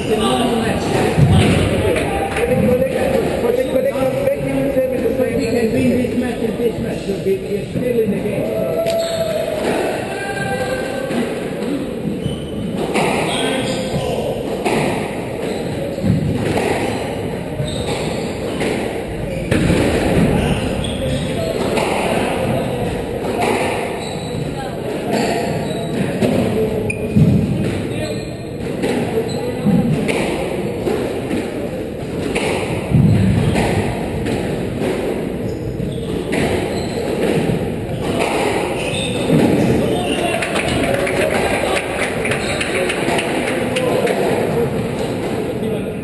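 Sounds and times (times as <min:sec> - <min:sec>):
squash ball smacking: 0:14.5 - 0:20.6, 0:28.6 - 0:41.5.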